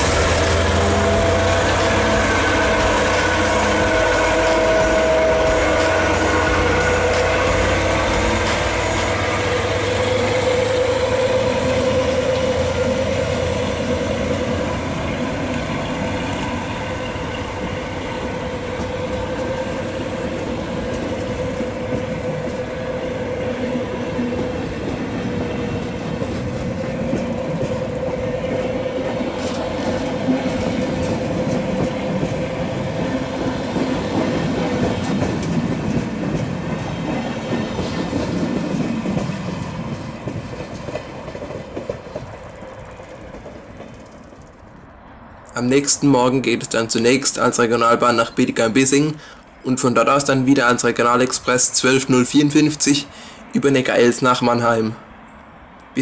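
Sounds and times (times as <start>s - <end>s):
locomotive whine and rumble: 0.0s - 45.5s
wheels clicking over rail joints: 24.2s - 45.0s.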